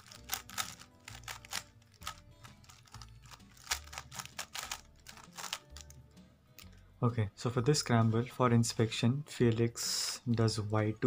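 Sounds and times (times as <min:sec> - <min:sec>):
puzzle cube layers clicking: 0:00.0 - 0:05.9.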